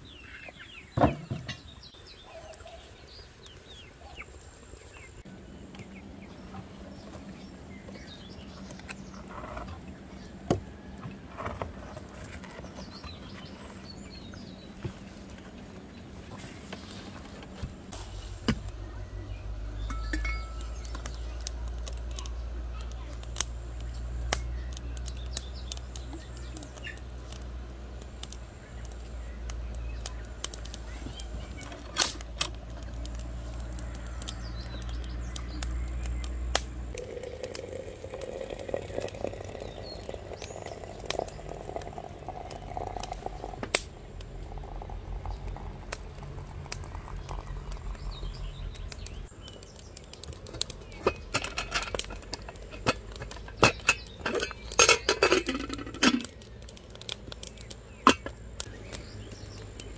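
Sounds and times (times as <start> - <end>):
low steady rumble: 5.2 - 59.9
water pouring into teapot: 37.0 - 43.6, 44.4 - 48.1.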